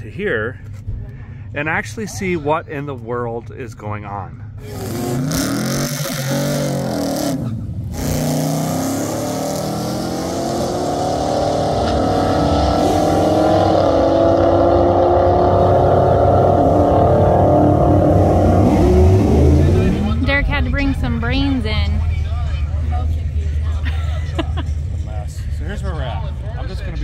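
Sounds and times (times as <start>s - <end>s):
race engines at full throttle: 4.5s - 27.0s
car engine revving: 4.6s - 23.7s.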